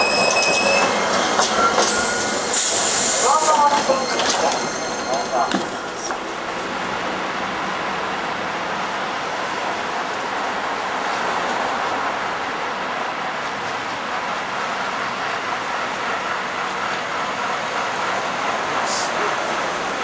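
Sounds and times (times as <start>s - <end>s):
locomotive running noise: 0.0s - 9.1s.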